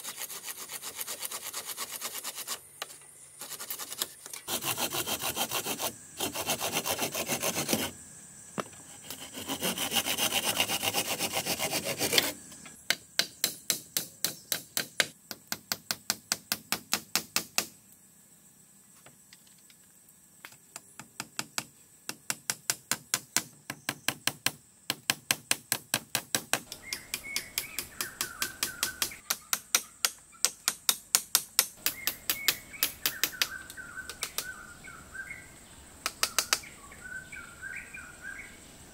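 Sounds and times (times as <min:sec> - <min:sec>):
hand tool rasping wood: 0:00.0 - 0:02.6, 0:03.4 - 0:08.0, 0:08.8 - 0:12.4
rapid back-and-forth sawing strokes: 0:00.0 - 0:08.0, 0:08.8 - 0:12.5
birds chirping: 0:26.7 - 0:30.6, 0:31.8 - 0:38.8.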